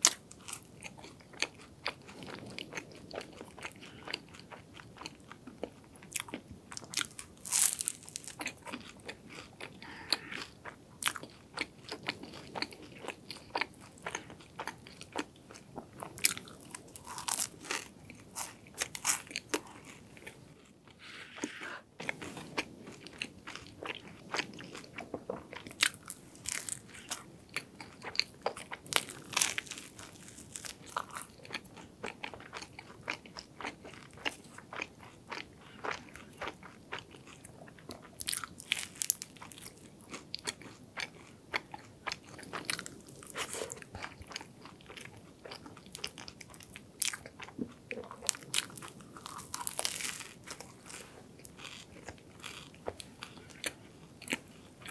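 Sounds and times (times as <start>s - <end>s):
soft chewing: 0.0s - 54.9s
crisp crunchy bites: 6.3s - 11.3s, 16.1s - 20.4s, 25.7s - 27.2s, 28.0s - 31.6s, 38.2s - 40.8s, 48.1s - 54.4s.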